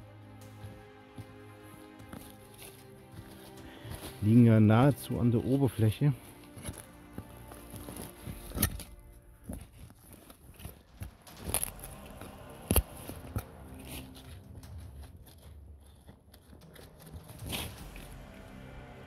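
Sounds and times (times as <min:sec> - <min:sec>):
hand rustling through dry leaves: 0:01.6 - 0:18.2
sharp knocks and crackles: 0:07.8 - 0:18.3.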